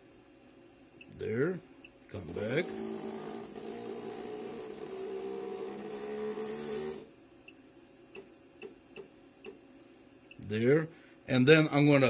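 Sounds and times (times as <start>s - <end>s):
stepper motors running: 2.2s - 7.1s.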